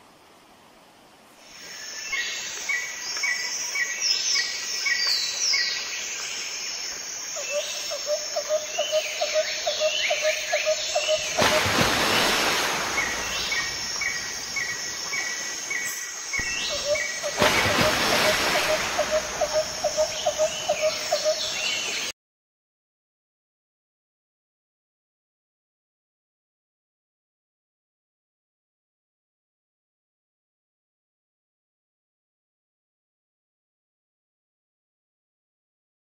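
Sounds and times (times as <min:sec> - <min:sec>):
running water hiss: 0:00.0 - 0:22.1
birds chirping: 0:08.8 - 0:22.1.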